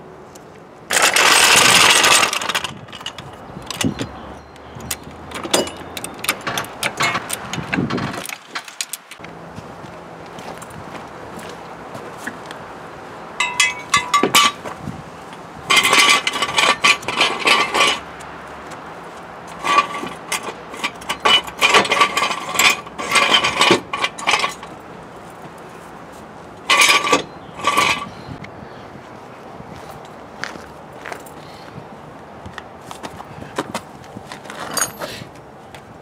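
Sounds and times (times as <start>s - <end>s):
metal jack gear clanking: 0.9s - 9.2s, 13.4s - 14.6s, 15.7s - 18.1s, 19.6s - 24.8s, 26.6s - 28.1s, 34.5s - 35.2s.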